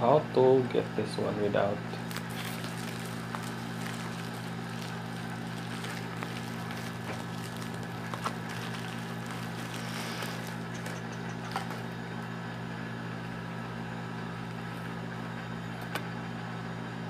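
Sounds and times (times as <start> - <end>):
steady low hum: 0.0 - 17.0
bubble wrap rustling and clicks: 2.0 - 11.9.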